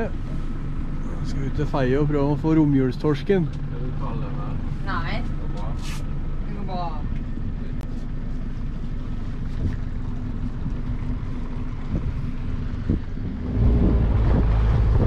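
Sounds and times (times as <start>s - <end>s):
boat motor running: 0.0s - 15.0s
wind on microphone: 11.8s - 15.0s.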